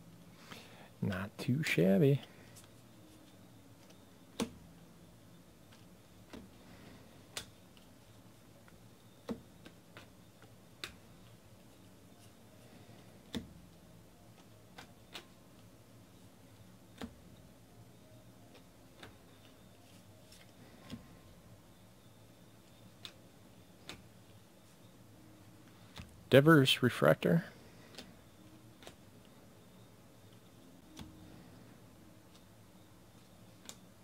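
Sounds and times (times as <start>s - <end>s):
faint steady hum: 0.0s - 34.0s
trading cards clicking: 14.3s - 15.7s, 23.8s - 24.4s.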